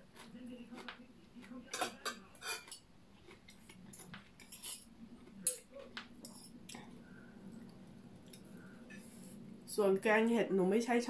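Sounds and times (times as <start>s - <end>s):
cutlery clinking on plates: 1.6s - 2.9s, 3.5s - 6.6s.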